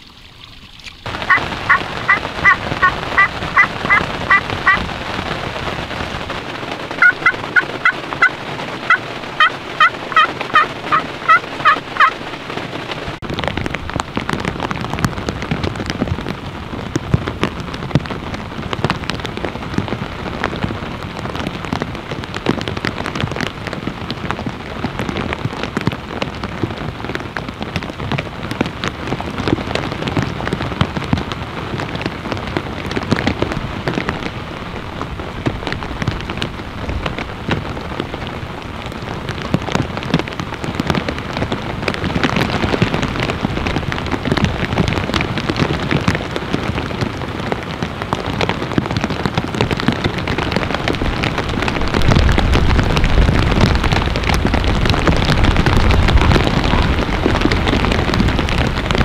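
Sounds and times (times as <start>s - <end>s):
steady rain: 0.0s - 59.0s
friction turkey call yelps: 1.3s - 4.8s, 8.9s - 12.1s.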